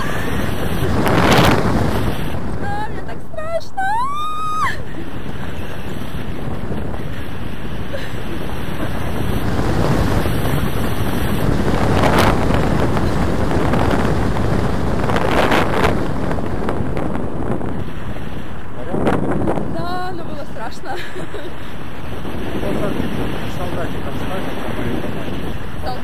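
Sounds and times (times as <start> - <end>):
wind buffeting microphone: 0.0 - 26.0.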